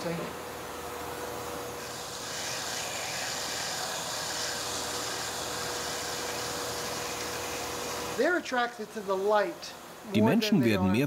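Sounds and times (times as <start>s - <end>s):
gas burner flame hissing: 1.5s - 10.1s.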